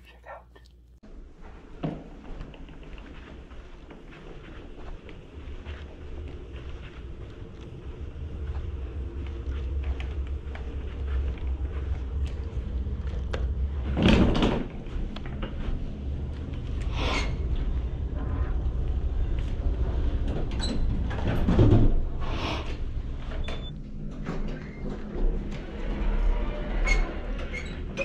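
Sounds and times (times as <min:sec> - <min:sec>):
suitcase wheels rumbling over carpet: 0:01.3 - 0:22.2.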